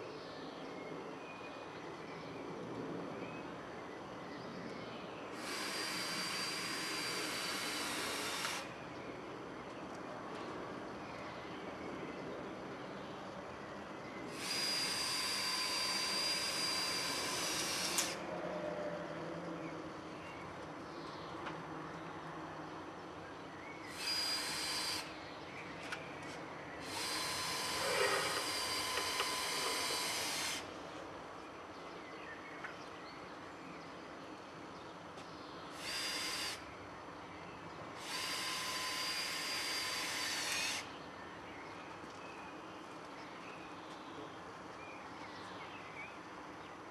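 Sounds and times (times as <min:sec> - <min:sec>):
cordless drill whining: 0:05.4 - 0:08.7, 0:14.3 - 0:18.2, 0:23.9 - 0:25.1, 0:26.8 - 0:30.7, 0:35.8 - 0:36.6, 0:38.0 - 0:40.9.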